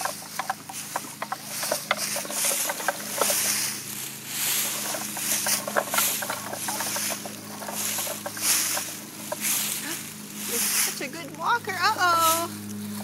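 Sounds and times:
wooden jaws clacking: 0.0 - 3.8, 4.5 - 9.8
wooden wheels rattling on concrete: 0.0 - 12.5.

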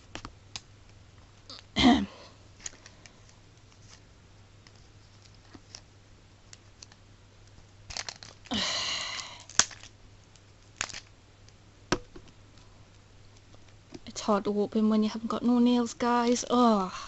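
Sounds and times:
plastic wrapping crinkling: 2.6 - 5.9, 6.5 - 11.1
plastic tearing crackle: 6.5 - 11.1.

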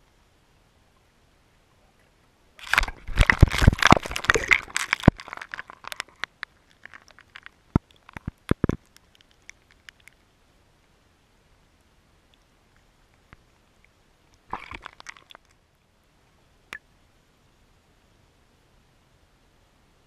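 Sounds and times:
crunching clicks: 2.6 - 10.2, 14.5 - 15.6.

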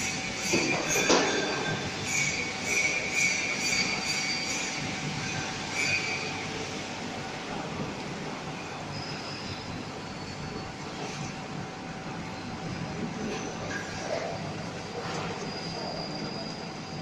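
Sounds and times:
short high-pitched squeals: 0.0 - 6.7, 13.6 - 17.0.

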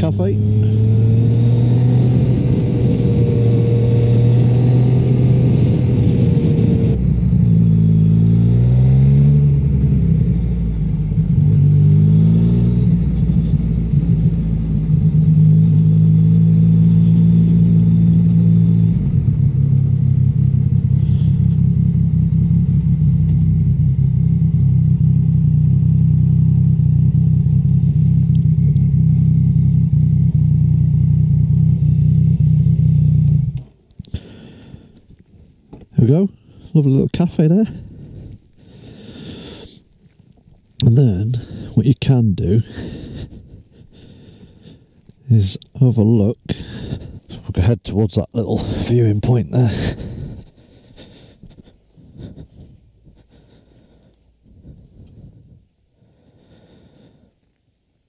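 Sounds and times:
motorcycle engine revving: 0.0 - 34.9.

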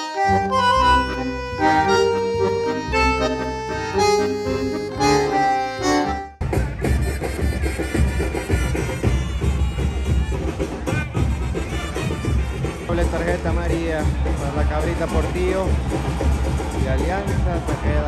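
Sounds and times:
accordion music over a beat: 0.0 - 10.1.

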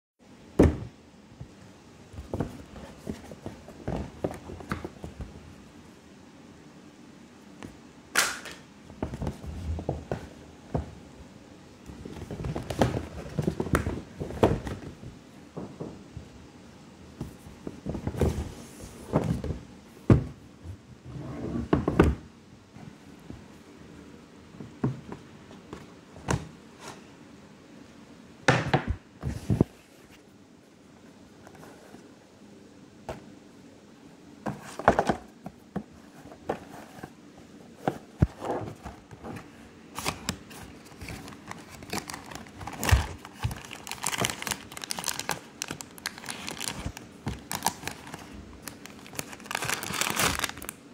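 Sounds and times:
paper bag rustling: 40.0 - 50.8.

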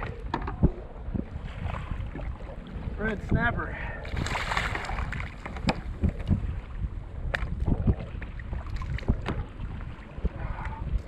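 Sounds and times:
knocks and thumps on kayak: 0.0 - 2.4, 4.2 - 6.6, 7.3 - 10.5
wind rumbling on microphone: 0.0 - 11.0.

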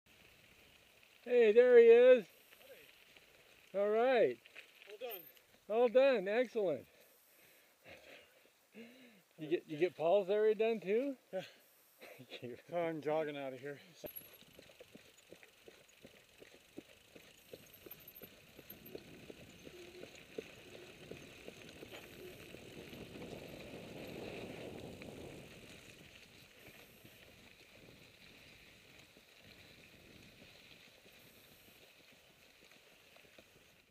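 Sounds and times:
bike tyres rolling on grit: 0.1 - 5.7, 12.6 - 33.9
bike clicks and rattles: 4.4 - 5.6, 14.0 - 31.4.

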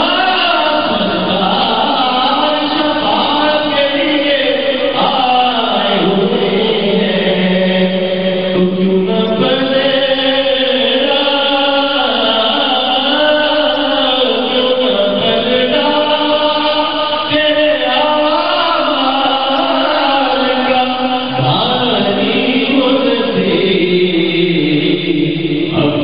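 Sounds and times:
man singing into a microphone: 0.0 - 26.0.

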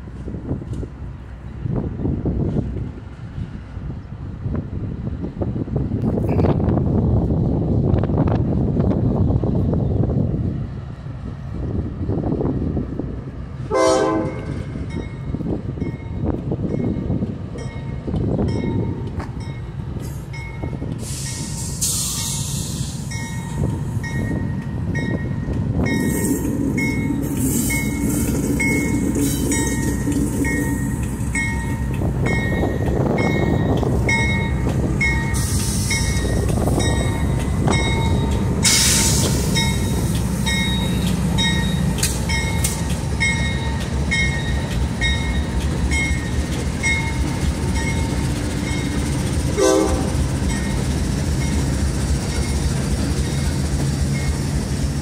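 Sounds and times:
locomotive engine rumble: 0.0 - 55.0
locomotive horn blast: 13.7 - 14.7, 49.5 - 50.2.

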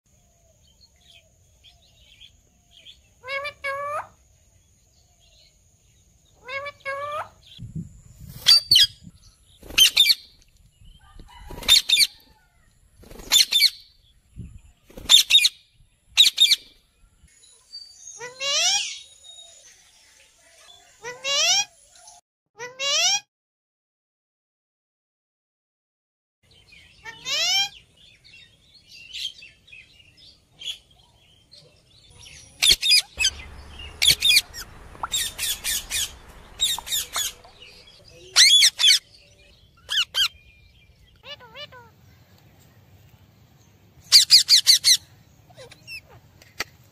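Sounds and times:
parakeets shrill calls: 9.6 - 10.3, 11.3 - 12.2, 13.2 - 13.9, 15.0 - 15.5, 32.2 - 39.1, 39.8 - 40.4, 44.1 - 45.0.

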